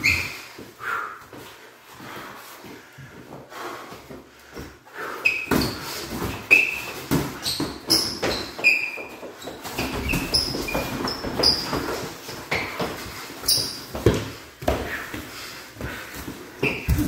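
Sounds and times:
shoes squeaking on floor: 0.0 - 3.1, 4.5 - 17.0
thuds of feet and blows: 13.9 - 17.0.

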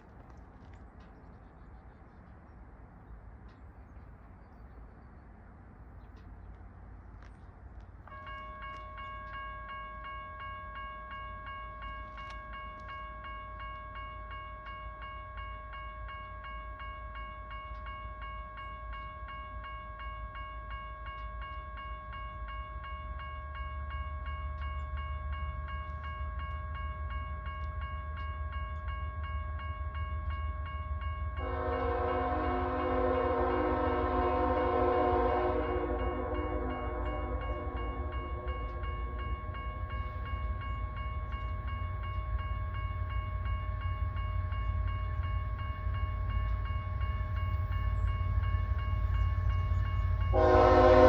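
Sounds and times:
low train rumble: 0.0 - 51.0
railroad crossing bell ringing: 8.0 - 51.0
locomotive air horn: 31.4 - 39.2, 50.3 - 51.0.

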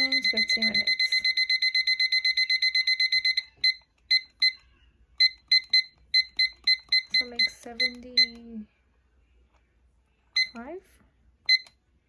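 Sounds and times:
kitchen timer beeps: 0.0 - 4.6, 5.2 - 8.5, 10.4 - 10.7, 11.4 - 11.8.

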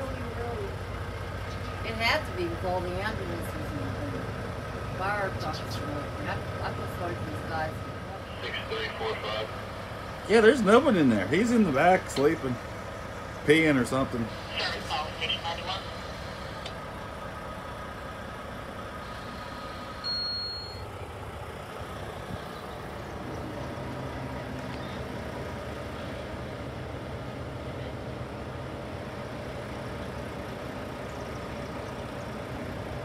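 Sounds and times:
diesel truck engines idling: 0.0 - 33.0
short high beep: 20.0 - 20.8.

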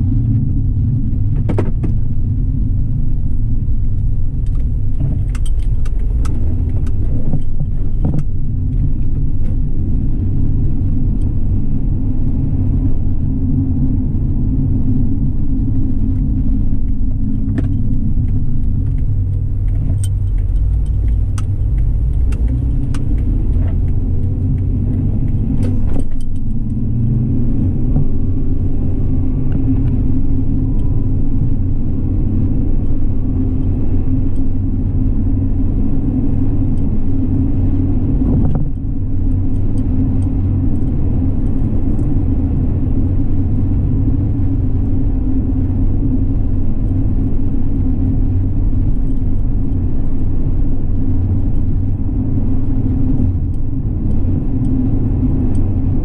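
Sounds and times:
car road and engine rumble: 0.0 - 56.0
light clicks and rattles: 3.9 - 9.6, 16.8 - 26.8.

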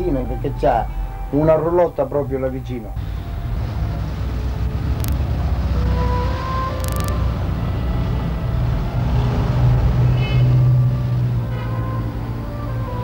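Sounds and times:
cars driving past: 3.0 - 13.0.

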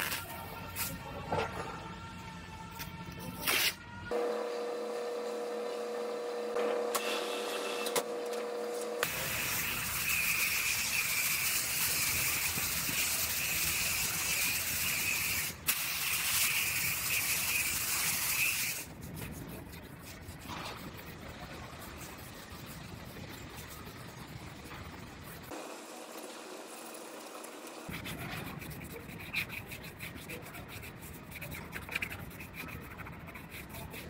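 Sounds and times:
sanding pad rubbing: 9.0 - 25.6, 27.9 - 34.0.

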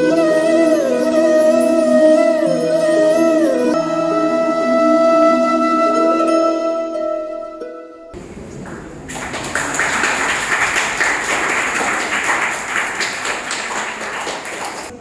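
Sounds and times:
music: 0.0 - 8.2
audience applause: 8.5 - 15.0.

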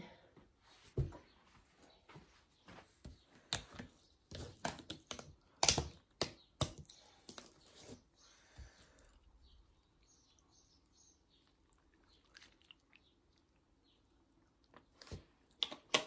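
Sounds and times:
breakfast things clicking and knocking: 3.0 - 7.6.

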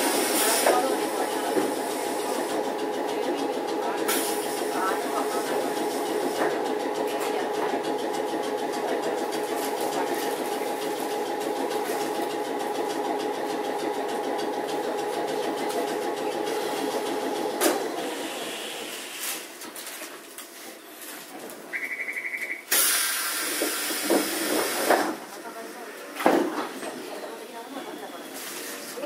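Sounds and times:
tram motor hum: 0.0 - 20.3, 20.9 - 29.0
wheel and rail noise: 0.0 - 21.7.

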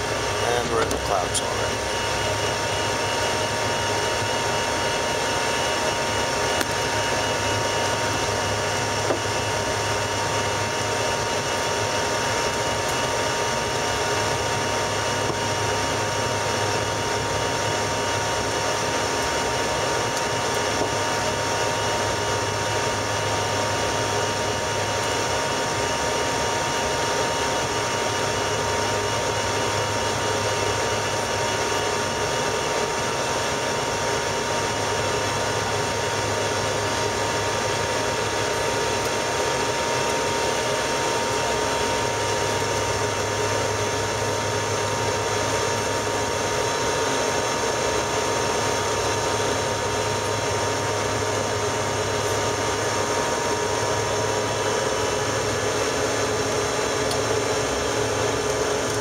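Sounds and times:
jet engine and airflow rush: 0.0 - 17.4
thin steady whine: 0.0 - 59.0.

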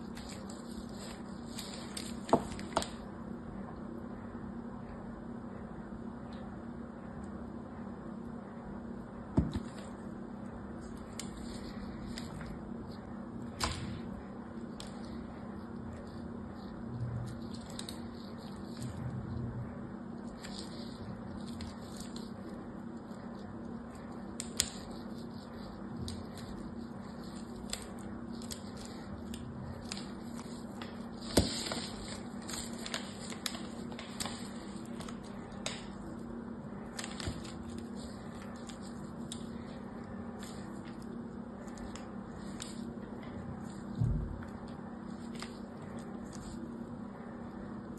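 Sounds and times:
low background hum: 0.0 - 47.9.

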